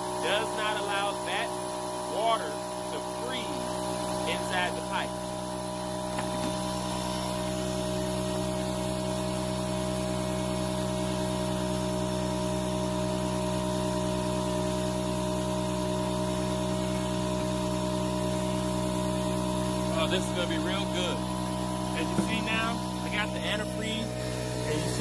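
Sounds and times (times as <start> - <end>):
steady motor hum: 0.0 - 25.0.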